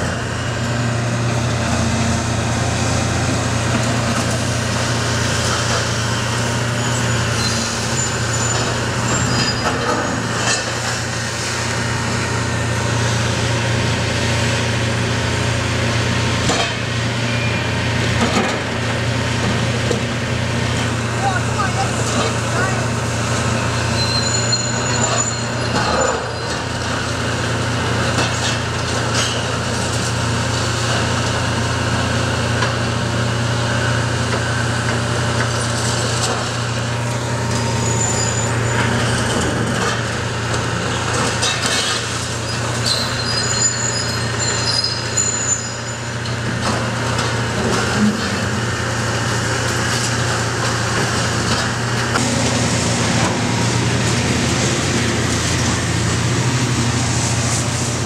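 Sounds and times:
diesel engine running: 0:00.0 - 0:58.0
high squeals: 0:06.6 - 0:09.9, 0:23.6 - 0:26.6, 0:37.5 - 0:39.1, 0:42.4 - 0:46.2.

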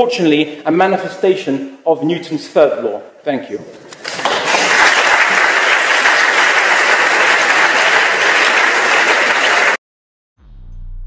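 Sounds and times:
crowd applauding: 0:04.0 - 0:09.8.

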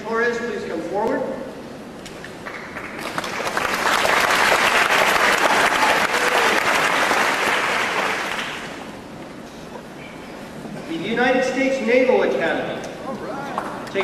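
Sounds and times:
audience applauding: 0:02.4 - 0:08.8.

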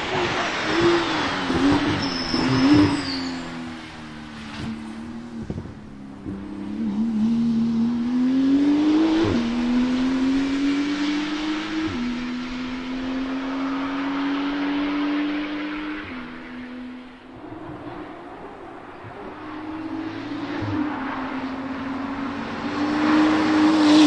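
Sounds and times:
car accelerating with upshifts: 0:00.0 - 0:24.0
sports car engine passing: 0:00.0 - 0:24.0
exhaust pops: 0:04.4 - 0:06.5.

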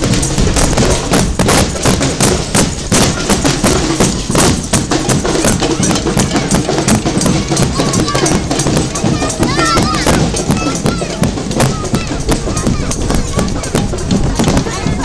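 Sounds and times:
children beating toy drums: 0:00.0 - 0:15.0.

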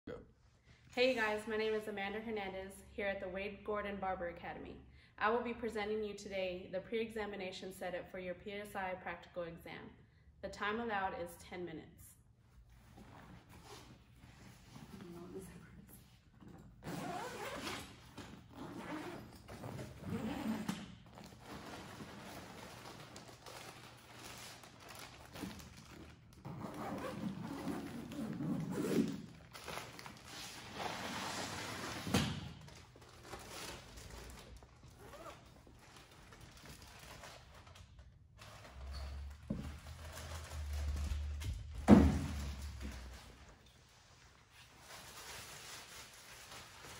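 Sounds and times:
backpack zipper opening: 0:16.4 - 0:22.5, 0:26.4 - 0:29.5, 0:34.9 - 0:35.6
plastic bag rustling: 0:21.1 - 0:26.4, 0:29.0 - 0:31.9, 0:32.6 - 0:38.9.

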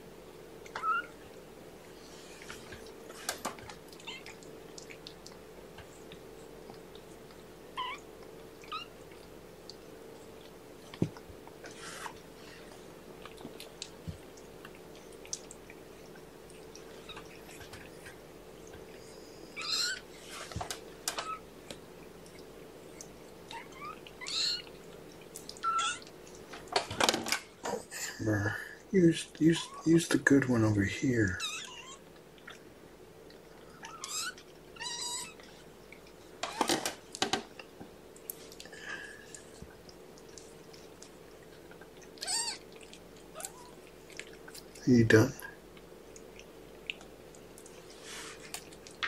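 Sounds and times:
steady low hum: 0:00.0 - 0:49.0
kittens mewing: 0:00.7 - 0:01.2, 0:07.7 - 0:09.0, 0:19.5 - 0:20.1, 0:23.5 - 0:24.7, 0:25.5 - 0:26.1, 0:31.3 - 0:32.6, 0:33.7 - 0:35.4, 0:42.1 - 0:43.8.

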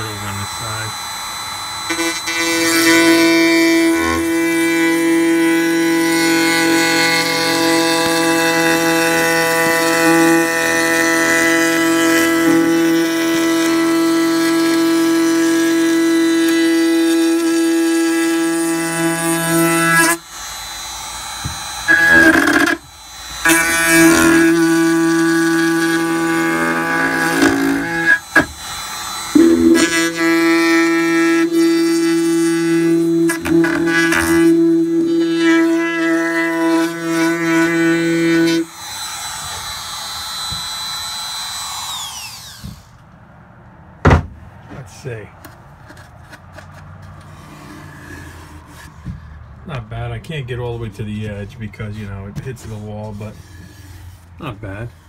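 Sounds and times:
router whining: 0:00.0 - 0:43.2.

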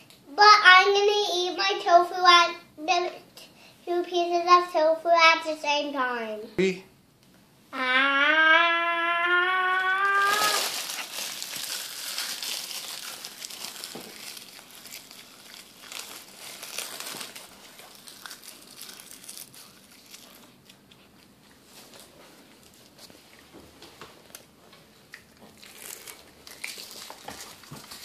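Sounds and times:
seaweed sheet crinkling and crunching: 0:09.8 - 0:20.9, 0:25.2 - 0:28.0.

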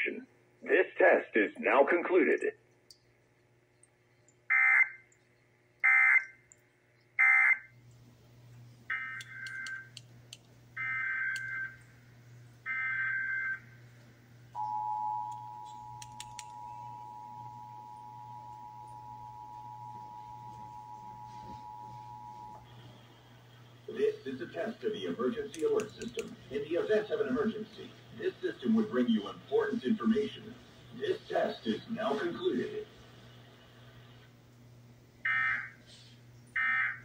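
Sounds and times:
two-tone attention signal: 0:14.6 - 0:22.7.

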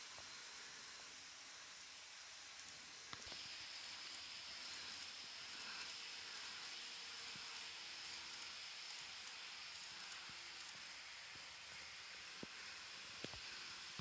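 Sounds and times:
model train wheels and motor hiss: 0:00.0 - 0:14.0.

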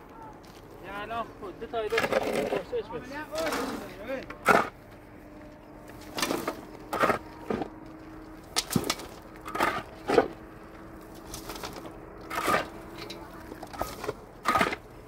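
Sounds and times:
sharp scraping knocks: 0:03.3 - 0:04.8, 0:13.6 - 0:14.8.

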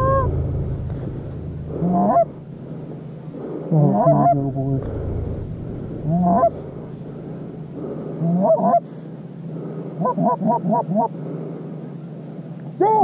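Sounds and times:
goose honks: 0:00.0 - 0:02.4, 0:03.7 - 0:04.9, 0:06.0 - 0:06.7, 0:07.9 - 0:08.9, 0:10.0 - 0:11.1.

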